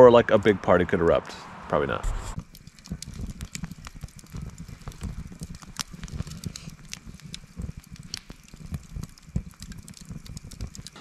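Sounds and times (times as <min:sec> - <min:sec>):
low rumble of fire: 0:00.0 - 0:11.0
campfire crackling and popping: 0:02.0 - 0:11.0.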